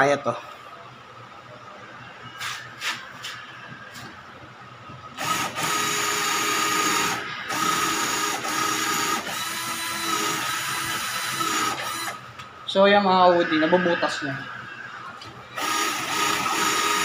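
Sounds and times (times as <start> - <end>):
drill drilling into concrete: 5.2 - 12.2, 15.6 - 17.0.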